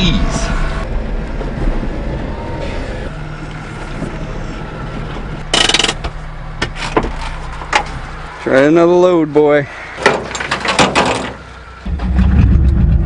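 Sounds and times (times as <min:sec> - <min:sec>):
small truck engine running: 0:00.6 - 0:08.5
loud rattle: 0:05.5 - 0:06.0, 0:10.0 - 0:13.0.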